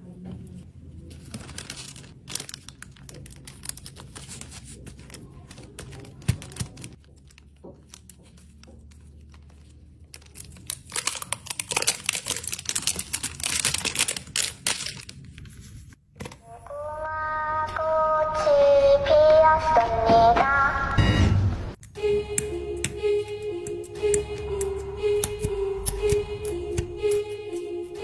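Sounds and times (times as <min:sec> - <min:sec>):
paper crinkling and crackling: 0:00.5 - 0:16.0.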